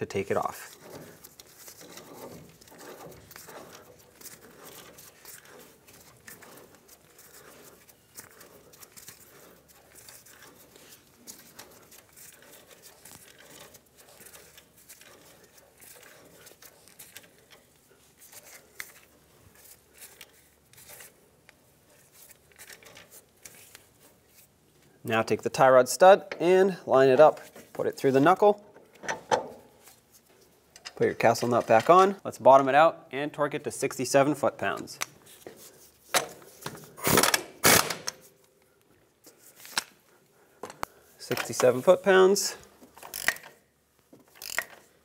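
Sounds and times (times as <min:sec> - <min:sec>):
metal parts handling noise: 0:00.3 - 0:21.2, 0:42.9 - 0:43.6
small clicks and scrapes: 0:00.3 - 0:25.0, 0:42.8 - 0:45.0.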